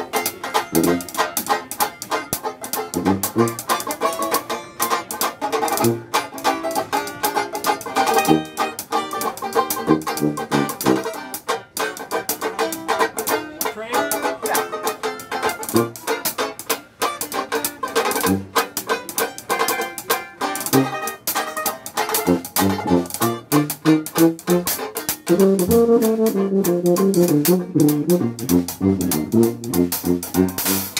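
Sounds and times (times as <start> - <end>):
banjo strumming quick chords: 0.0 - 30.9
dixieland band playing: 0.0 - 30.9
low bass notes: 0.6 - 1.2, 2.8 - 3.8, 5.7 - 6.2, 8.0 - 8.8, 9.6 - 11.2, 15.6 - 16.0, 18.1 - 18.7, 20.6 - 21.2, 22.2 - 30.9.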